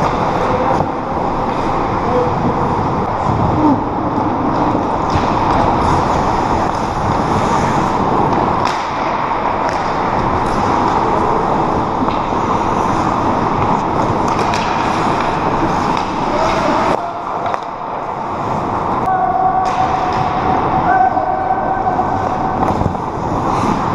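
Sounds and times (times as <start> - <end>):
skate blades scraping ice: 4.4 - 19.0, 21.9 - 23.9
stick hitting puck: 4.5 - 5.9, 8.2 - 11.2, 12.0 - 12.5, 13.6 - 17.9, 19.6 - 20.5.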